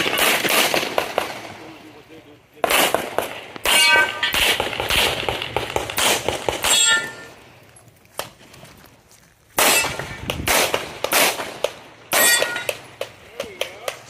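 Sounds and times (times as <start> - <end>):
pistol shots: 0.0 - 1.8, 2.6 - 7.4, 9.6 - 13.7
metallic ring: 3.7 - 4.4, 6.6 - 7.4, 12.2 - 12.7.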